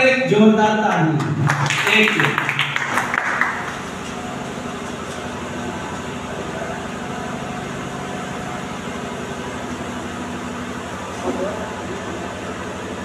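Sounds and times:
machine humming: 1.2 - 13.0.

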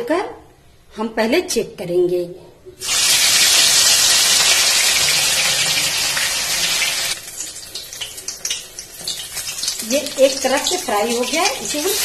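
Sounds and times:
fish sizzling in hot oil: 2.8 - 12.0
oil crackling and popping: 2.8 - 12.0.

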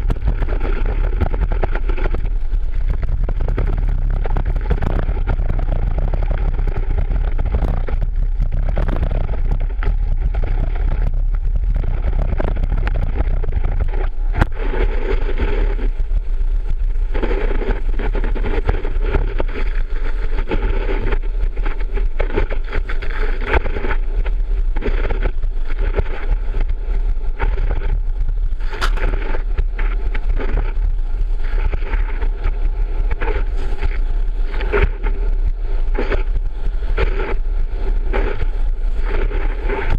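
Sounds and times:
low rumble: 0.0 - 39.9.

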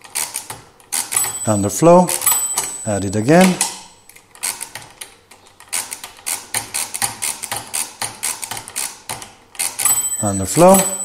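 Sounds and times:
mechanical calculator clattering: 0.0 - 11.0
small bell ringing: 1.1 - 4.0, 9.8 - 11.0.

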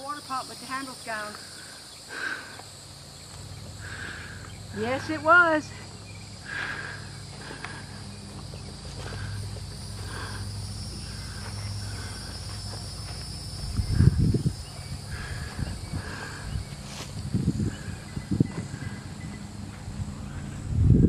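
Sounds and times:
insects droning: 0.0 - 21.0
low steady hum: 0.0 - 21.0
low rumbling thumps: 8.1 - 21.0.

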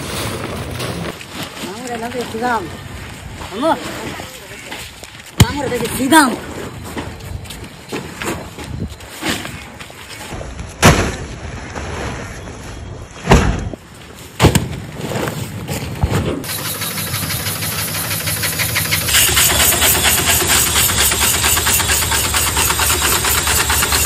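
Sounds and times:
fast mechanical clatter: 16.4 - 24.0
sharp loud machine knocks: 16.5 - 24.0.

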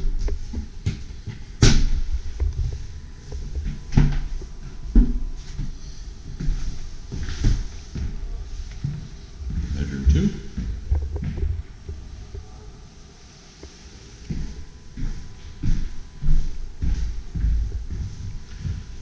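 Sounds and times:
low rumble: 8.2 - 12.8.

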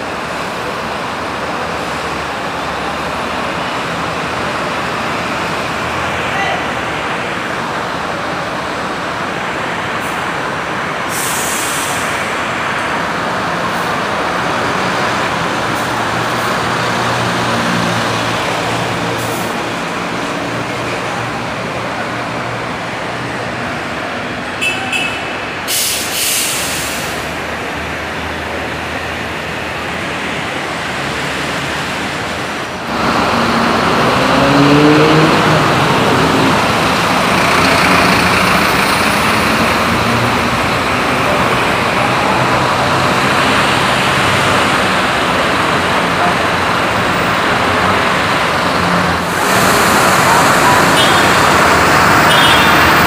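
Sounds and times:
bus engine revving up: 0.0 - 24.6, 25.4 - 53.0
bus diesel engine: 0.0 - 53.0
air brake hissing: 11.1 - 12.2, 25.7 - 27.3.

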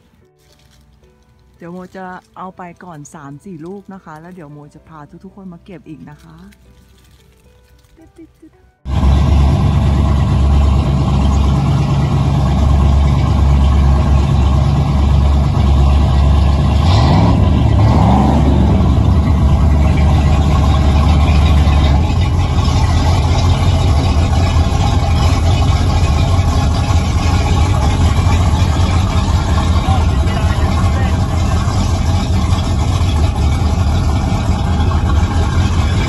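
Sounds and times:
boat engine idling: 8.8 - 36.0.

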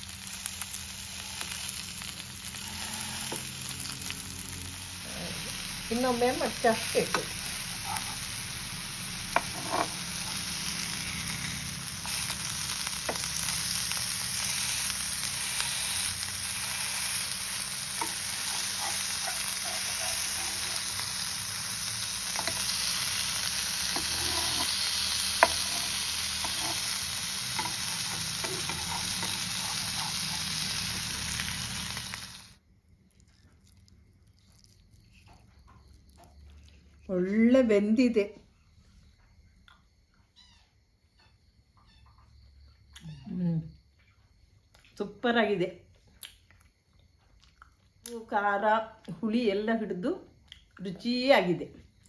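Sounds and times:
fish sizzling in a pan: 0.0 - 32.6
metal spatula scraping pan: 2.5 - 3.5, 9.3 - 12.2, 23.8 - 31.0.

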